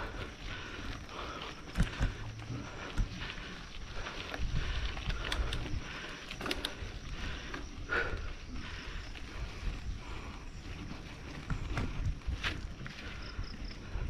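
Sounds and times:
bike clicks and rattles: 0:00.0 - 0:14.0
wind rumble on microphone: 0:00.0 - 0:14.0.

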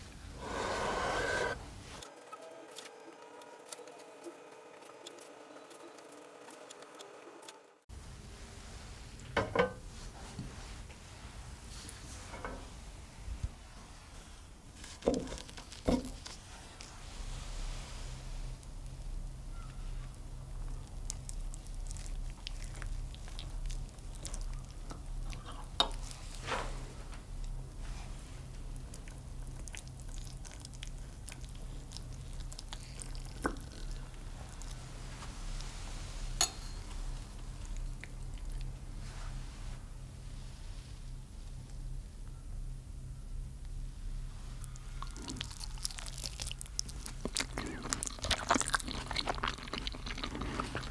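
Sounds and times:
crisp crust crackling and crunching: 0:14.8 - 0:16.9, 0:28.6 - 0:35.7, 0:44.6 - 0:50.9.

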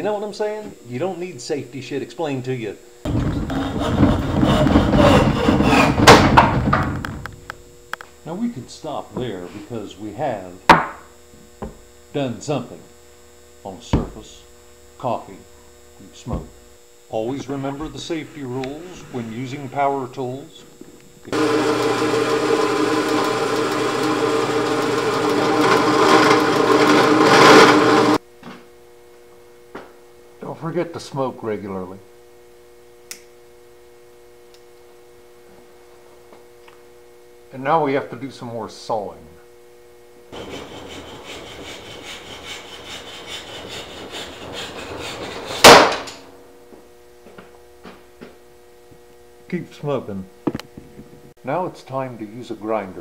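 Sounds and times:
hand saw rasping through wood: 0:03.1 - 0:06.2, 0:21.3 - 0:28.2, 0:40.4 - 0:45.9
drill press boring into wood: 0:03.1 - 0:07.3, 0:17.5 - 0:20.6, 0:21.2 - 0:28.2, 0:40.4 - 0:46.2.

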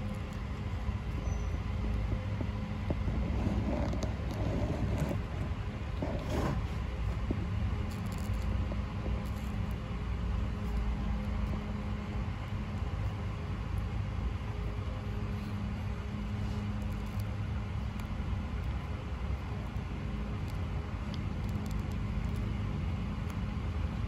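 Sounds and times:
faint hum: 0:00.0 - 0:24.0
low background rumble: 0:00.0 - 0:24.0
tortoises biting leafy greens: 0:03.1 - 0:08.6, 0:15.3 - 0:24.0.

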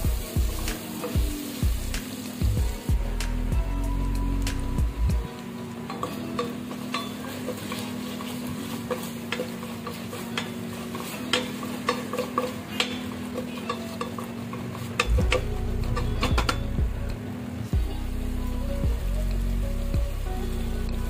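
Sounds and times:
light sizzle of frying: 0:00.0 - 0:21.0
wooden spatula scraping metal pot: 0:05.9 - 0:17.2.

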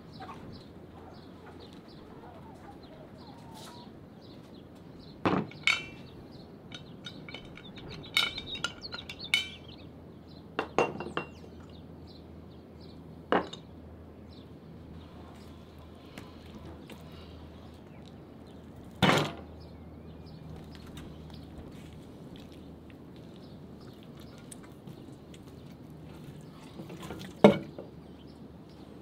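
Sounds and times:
cookware clinking and knocking: 0:05.3 - 0:06.1, 0:06.7 - 0:09.7, 0:10.6 - 0:11.4.

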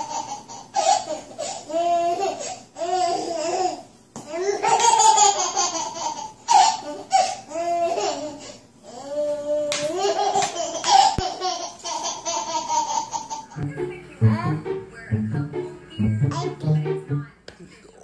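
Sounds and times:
baby laughing: 0:00.0 - 0:13.6.

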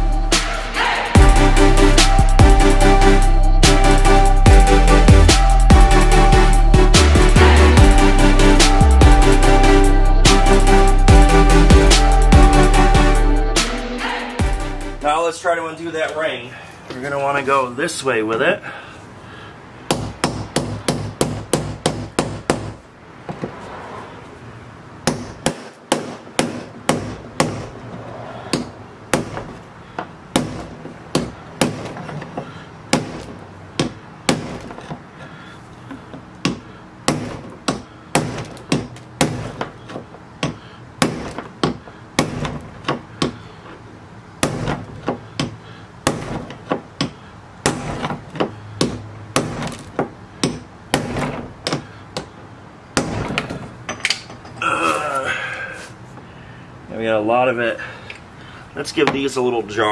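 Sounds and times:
hammer tapping on metal: 0:35.9 - 0:43.4, 0:44.4 - 0:52.3.

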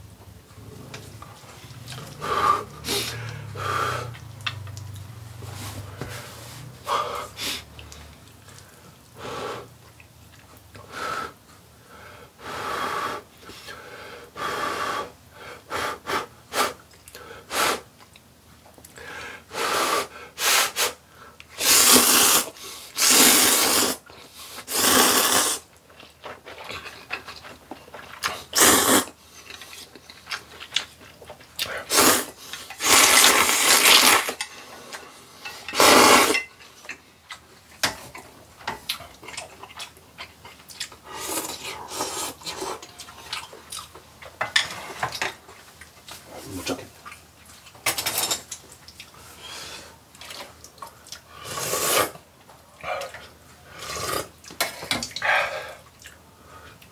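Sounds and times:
chewing and breathing: 0:00.6 - 0:12.5, 0:25.7 - 0:32.8, 0:36.5 - 0:47.8, 0:48.6 - 0:51.5, 0:52.4 - 0:56.9
man slurping noodles: 0:21.6 - 0:24.0, 0:24.7 - 0:25.7, 0:28.4 - 0:29.2, 0:31.8 - 0:34.4, 0:35.7 - 0:36.4, 0:51.4 - 0:52.2, 0:53.7 - 0:54.3.

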